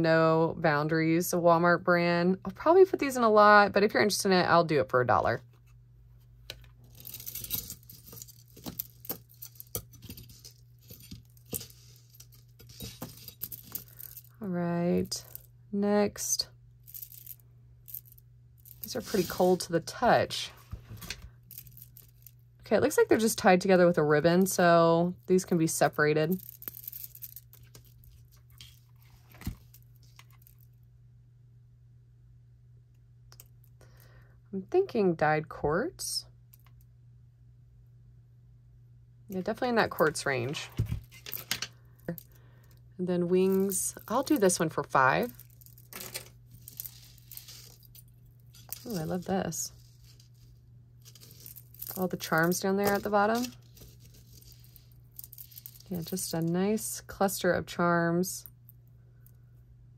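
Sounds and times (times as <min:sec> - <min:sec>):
low steady hum: 0:00.0 - 0:59.9
beads and metal pieces clinking: 0:06.8 - 0:14.4, 0:16.2 - 0:20.4, 0:21.0 - 0:23.5, 0:24.4 - 0:30.7, 0:39.4 - 0:42.4, 0:43.2 - 0:56.9.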